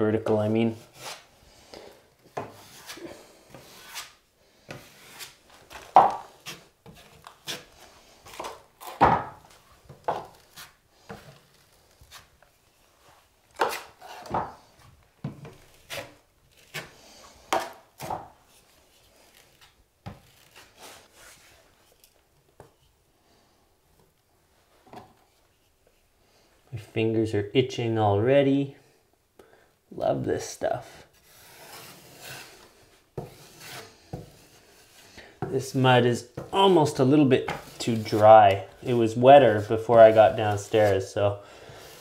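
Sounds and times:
drywall knife scraping compound: 0:00.7 - 0:09.0, 0:10.1 - 0:12.3, 0:13.5 - 0:14.7, 0:15.6 - 0:21.8, 0:30.8 - 0:42.0.

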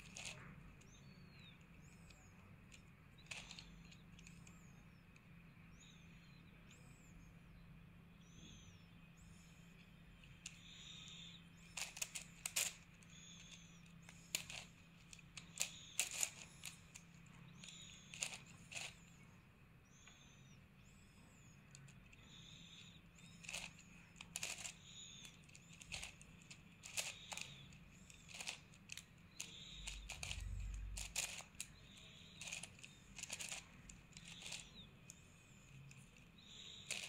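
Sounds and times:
puzzle cube layers clicking: 0:00.0 - 0:00.4, 0:03.3 - 0:04.4, 0:10.4 - 0:19.0, 0:23.4 - 0:34.8, 0:36.6 - 0:37.0.

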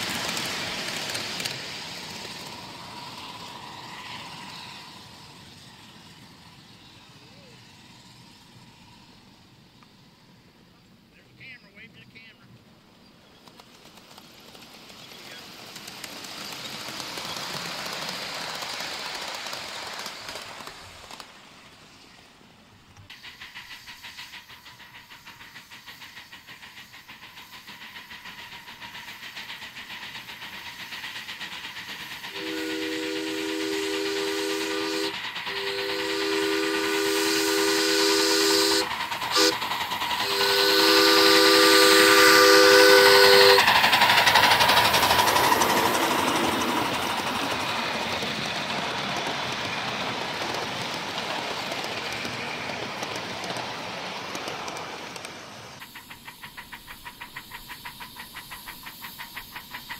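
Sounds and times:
steam locomotive exhaust chuffing: 0:00.0 - 0:12.7, 0:13.4 - 0:59.9
steam whistle blasts: 0:32.3 - 0:39.6, 0:40.2 - 0:43.6.

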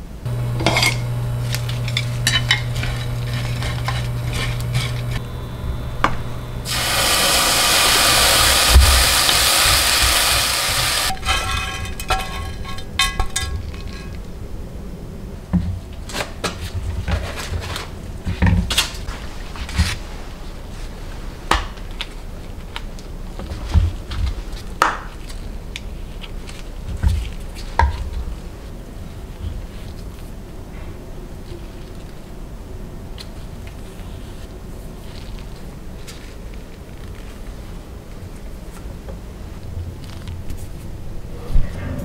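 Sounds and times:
wooden spoon stirring: 0:00.3 - 0:14.2
fish sizzling in a pan: 0:05.8 - 0:11.2.

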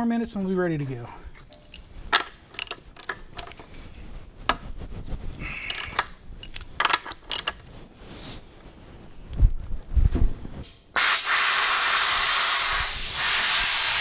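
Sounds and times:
hand tools clinking: 0:01.3 - 0:03.8, 0:05.4 - 0:07.6
socket ratchet clicking: 0:01.6 - 0:03.6, 0:05.7 - 0:07.6.

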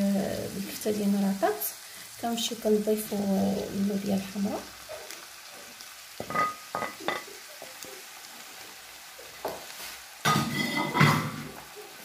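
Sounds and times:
meat sizzling in a frying pan: 0:00.0 - 0:12.0
spoon scraping a pan: 0:06.2 - 0:07.3, 0:09.5 - 0:11.4.

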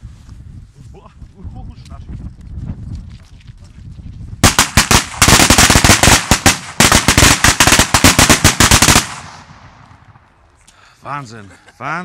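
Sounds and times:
firecracker bangs: 0:04.4 - 0:10.2.

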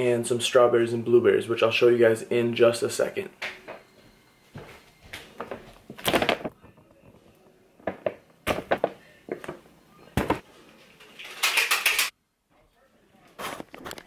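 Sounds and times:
handling thumps: 0:07.8 - 0:10.4.

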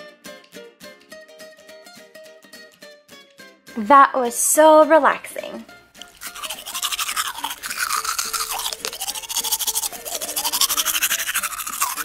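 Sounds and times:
toothbrush scrubbing teeth: 0:06.0 - 0:12.0.

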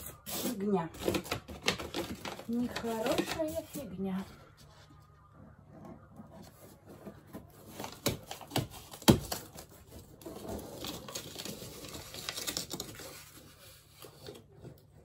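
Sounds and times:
paper rustling under hand: 0:06.4 - 0:15.0.

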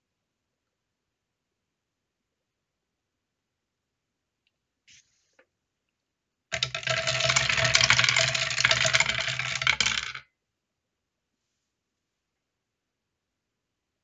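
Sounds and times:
dice clattering down ramp: 0:06.5 - 0:10.2.

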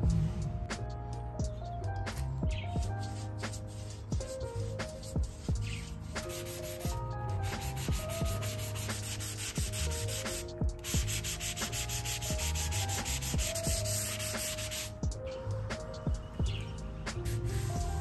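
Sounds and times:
background music: 0:00.0 - 0:18.0
sanding sponge rubbing plywood: 0:03.1 - 0:14.9.

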